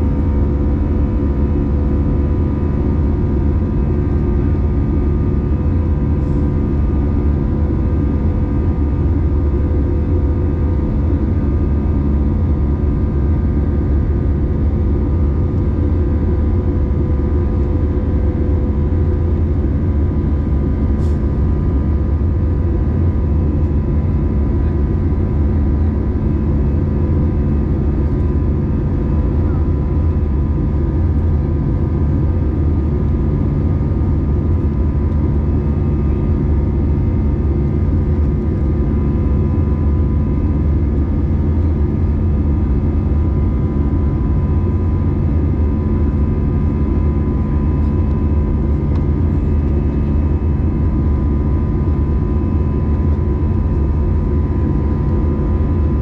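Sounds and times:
jet engine cabin rumble: 0.0s - 56.0s.

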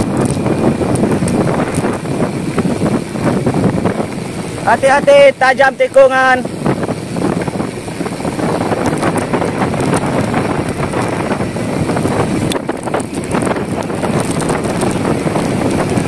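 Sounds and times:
small clicks and rattles: 0.0s - 2.0s, 8.6s - 11.2s, 12.4s - 15.9s
bicycle tyre road noise: 0.0s - 16.0s
wind rushing over microphone: 0.0s - 16.0s.

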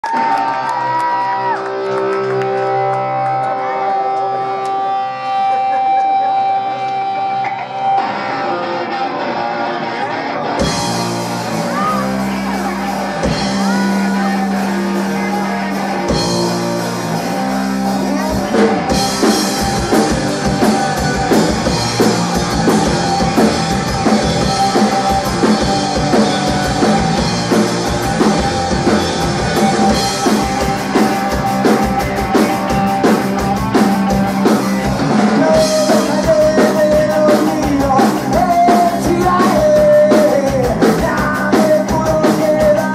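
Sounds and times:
rock band with drums: 0.0s - 42.9s
low bass notes: 10.4s - 42.9s.

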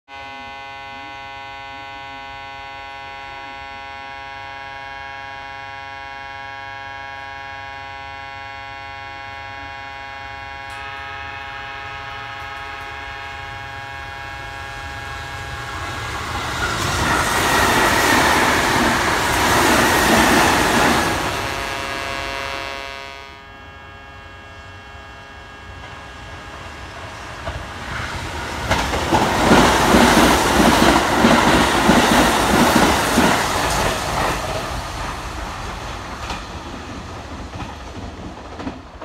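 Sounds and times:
electric train passing: 0.1s - 39.0s
steady hum of held tones: 21.4s - 27.0s.

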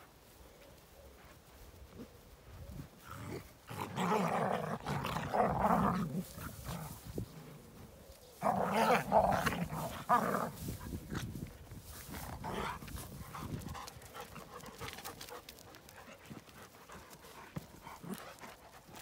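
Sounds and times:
dogs growling: 3.0s - 7.8s, 8.4s - 11.3s, 12.2s - 19.0s
dogs scuffling: 8.4s - 19.0s
dogs panting: 12.0s - 19.0s.

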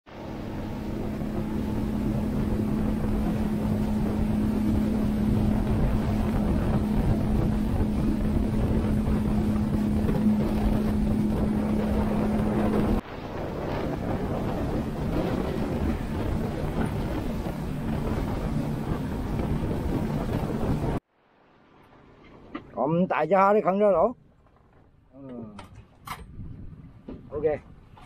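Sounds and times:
outboard motor humming: 0.0s - 21.0s
water rushing along hull: 0.0s - 24.8s
wind on microphone: 0.1s - 21.0s, 25.7s - 28.0s.

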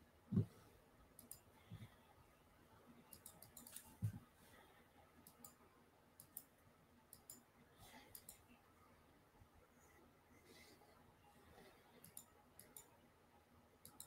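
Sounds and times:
computer mouse clicks: 1.2s - 1.5s, 3.1s - 4.2s, 5.2s - 5.6s, 6.2s - 6.5s, 7.1s - 8.6s, 12.0s - 13.0s, 13.8s - 14.0s.

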